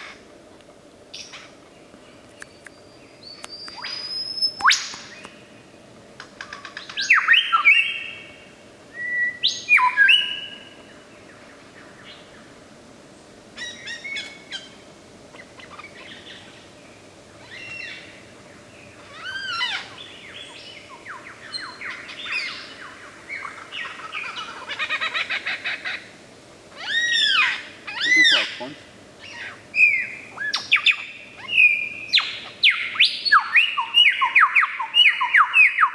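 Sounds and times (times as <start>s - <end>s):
lyrebird whistled song: 2.4s - 5.4s, 8.9s - 10.7s, 29.2s - 35.9s.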